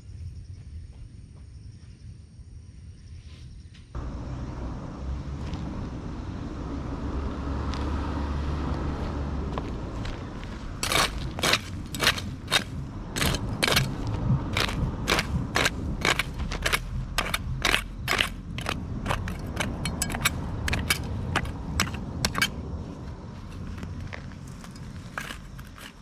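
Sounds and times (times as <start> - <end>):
weeds being torn out: 10.8 - 22.5, 24.4 - 26.0
weeding tool scraping dry soil: 10.8 - 22.6, 23.4 - 26.0.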